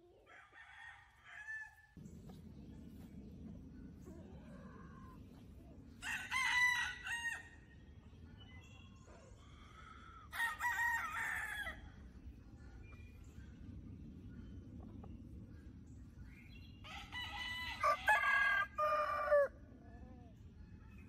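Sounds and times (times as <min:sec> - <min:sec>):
rooster crowing: 0:06.0 - 0:07.6, 0:10.3 - 0:11.9, 0:16.9 - 0:19.6.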